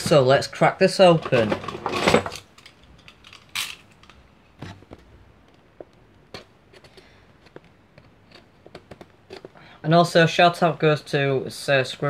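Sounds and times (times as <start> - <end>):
knife scraping plastic: 6.3 - 9.6.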